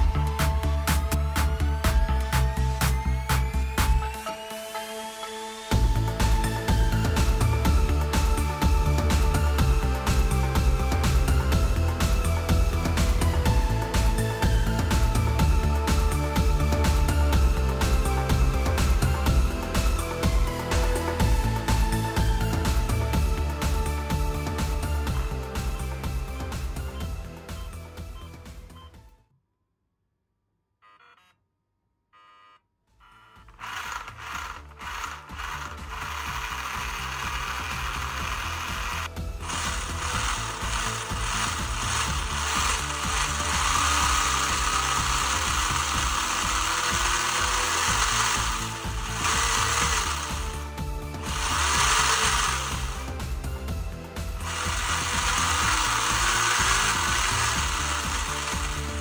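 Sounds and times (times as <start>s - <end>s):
electric motor spinning gears: 5.7s - 26.0s, 33.4s - 59.0s
speed controller beeps: 26.9s - 29.0s, 32.2s - 50.5s.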